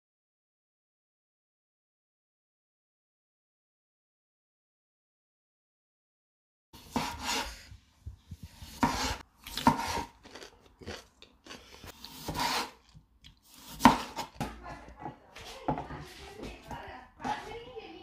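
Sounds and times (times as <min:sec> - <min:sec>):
knife slicing cucumber on board: 0:06.8 - 0:10.2, 0:11.9 - 0:17.4.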